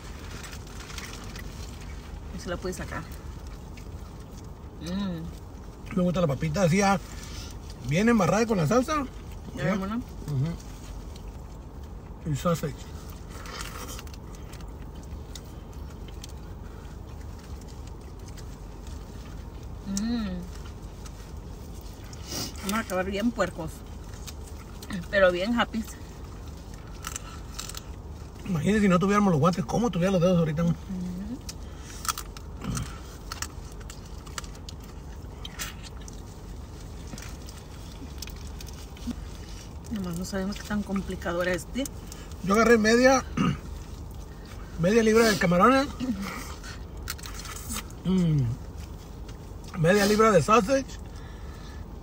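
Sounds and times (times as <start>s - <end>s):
plastic bag crinkling: 0.0s - 2.3s
chewing: 0.0s - 6.0s, 9.0s - 25.1s, 25.7s - 28.5s, 30.8s - 49.8s
low steady hum: 0.0s - 52.0s
people eating with plastic gloves: 0.0s - 52.0s.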